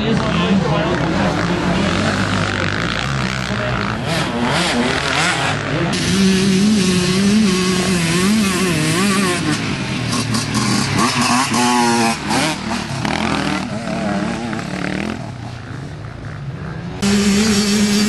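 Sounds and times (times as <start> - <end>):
dirt bike engines revving: 0.0 - 18.0.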